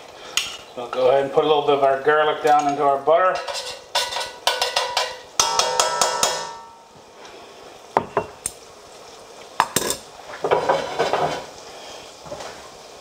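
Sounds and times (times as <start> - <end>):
butter and garlic sizzling: 0.0 - 13.0
tongs clinking against pan: 3.4 - 6.8.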